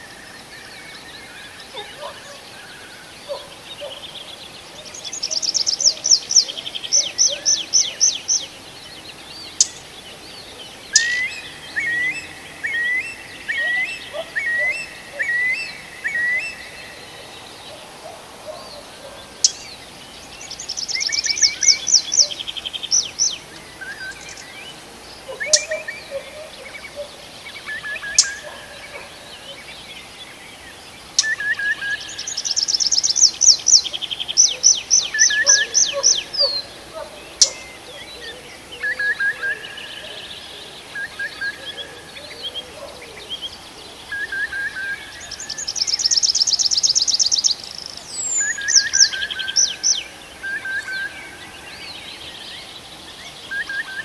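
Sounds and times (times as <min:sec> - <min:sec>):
songbird trilling and whistling: 0:10.9 - 0:16.6, 0:20.8 - 0:24.4, 0:25.3 - 0:28.6, 0:31.2 - 0:36.7, 0:48.1 - 0:51.1.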